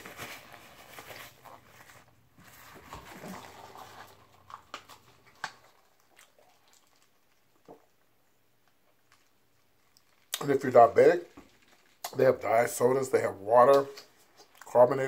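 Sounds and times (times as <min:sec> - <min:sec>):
faint chewing: 0:03.1 - 0:10.5.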